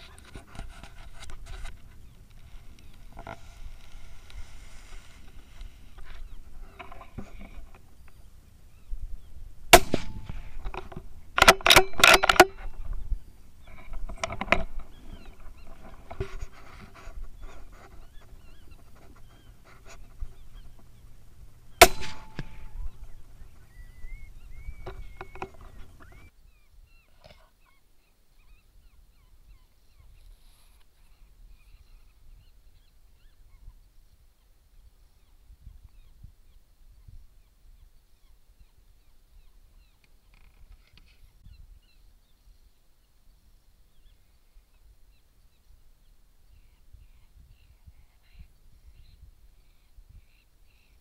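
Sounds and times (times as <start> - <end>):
gunshots: 9.7 - 10.6, 21.8 - 22.9
rapid sharp gunfire cracks: 9.8 - 10.5, 21.8 - 22.8.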